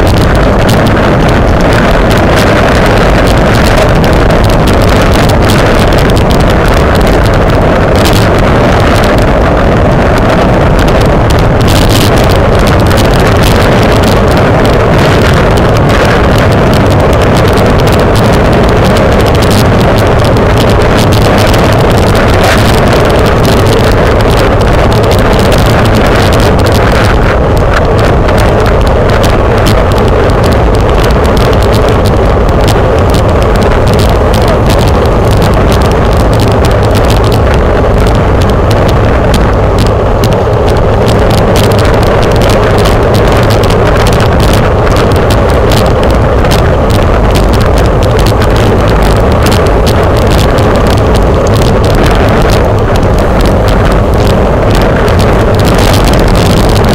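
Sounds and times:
wind buffeting microphone: 0:00.0 - 0:56.9.

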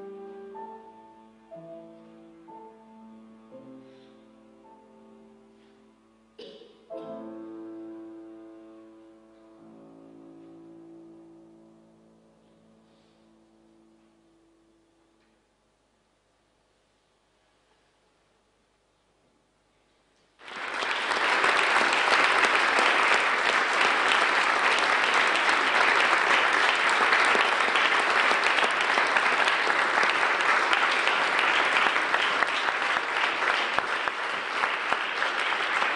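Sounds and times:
audience applauding: 0:20.4 - 0:35.9.

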